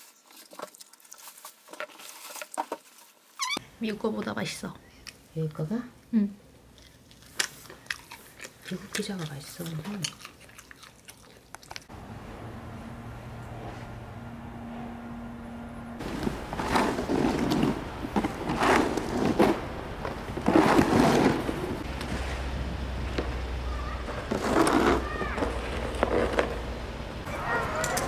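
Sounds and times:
snow shovel scraping road: 0:16.0 - 0:22.6, 0:23.6 - 0:27.0.

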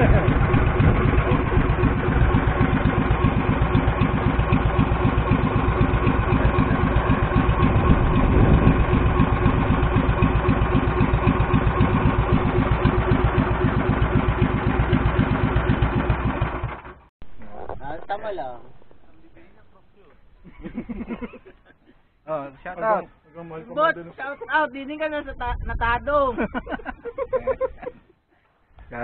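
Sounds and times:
boat engine running: 0:00.0 - 0:19.7.

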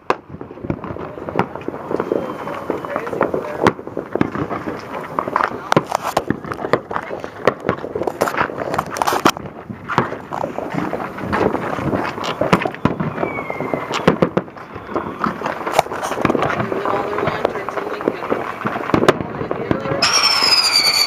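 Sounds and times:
firecrackers popping and banging: 0:00.0 - 0:21.0
firework whistle: 0:01.4 - 0:03.8, 0:12.2 - 0:16.2, 0:19.9 - 0:21.0.

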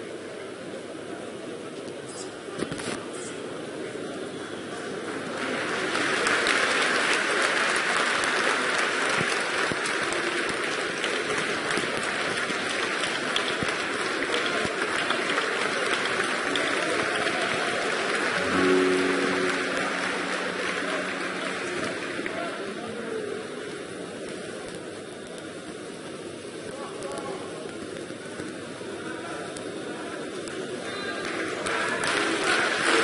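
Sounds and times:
audience applauding: 0:05.0 - 0:24.2, 0:30.8 - 0:33.0
low sustained note: 0:18.4 - 0:23.0.

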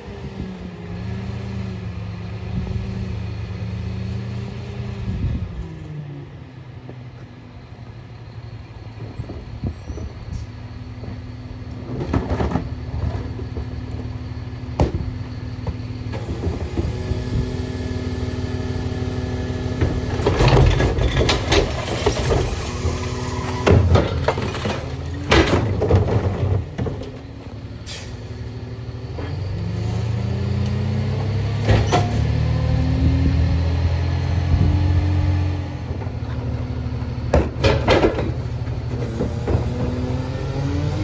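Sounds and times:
garbage truck engine running: 0:05.0 - 0:41.0
cart tipper bangs and clatters: 0:19.8 - 0:27.0, 0:37.3 - 0:40.0.

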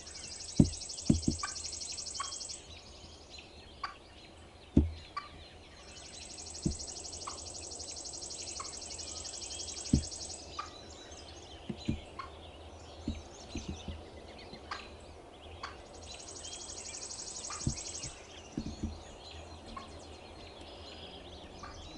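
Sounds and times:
dull low thumps: 0:00.5 - 0:01.5, 0:04.8 - 0:05.1, 0:06.6 - 0:07.0, 0:09.9 - 0:10.2, 0:13.0 - 0:14.0, 0:17.6 - 0:19.1
turkey clucking: 0:00.6 - 0:01.6.

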